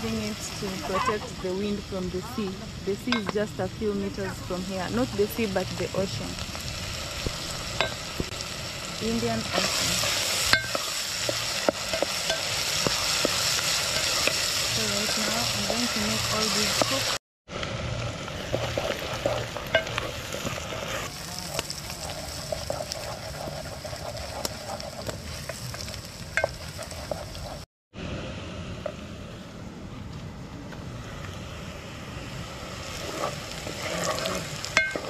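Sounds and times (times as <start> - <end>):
onions sizzling in a pot: 0.0 - 27.7, 31.1 - 35.0
wooden spoon scraping a pot: 9.4 - 17.1, 18.5 - 27.6, 33.0 - 35.0.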